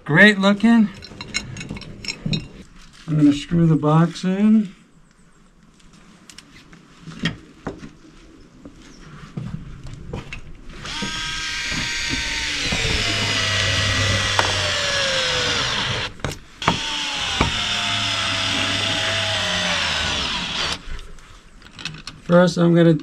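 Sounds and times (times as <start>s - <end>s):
cordless screwdriver driving screws: 10.8s - 20.8s.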